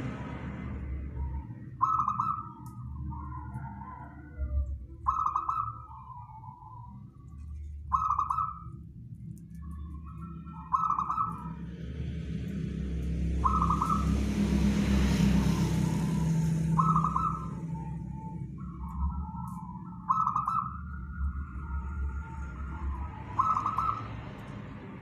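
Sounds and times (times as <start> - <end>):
broad rushing noise with rumble: 0.0 - 5.0, 8.7 - 25.0
dove cooing: 1.1 - 8.8, 10.1 - 11.7, 13.4 - 24.1.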